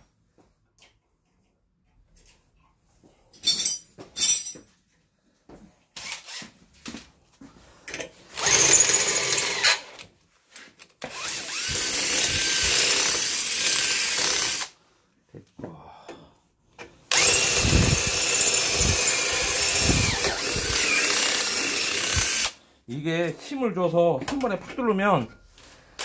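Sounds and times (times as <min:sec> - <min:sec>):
power drill drilling plastic: 0:08.3 - 0:10.0, 0:11.0 - 0:14.7, 0:17.1 - 0:22.6.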